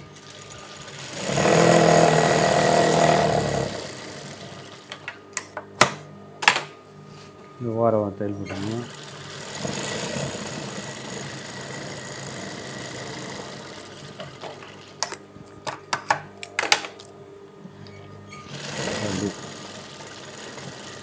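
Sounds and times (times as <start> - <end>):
sewing machine stitching: 0.0 - 5.0, 8.5 - 14.8, 18.4 - 21.0.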